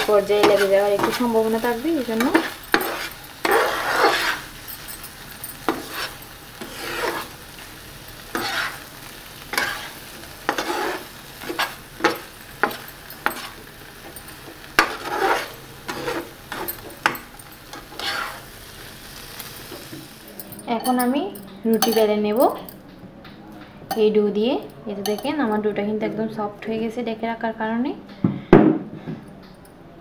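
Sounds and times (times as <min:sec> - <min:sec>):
spatula scraping a frying pan: 0:00.0 - 0:20.2
light sizzle: 0:00.0 - 0:25.9.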